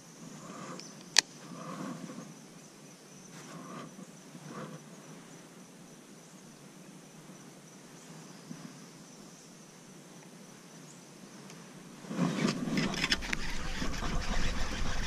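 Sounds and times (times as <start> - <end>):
faint insect buzz: 0.0 - 15.0
wind on microphone: 12.0 - 15.0
microphone handling noise: 12.1 - 15.0
fishing reel clicks: 12.7 - 15.0.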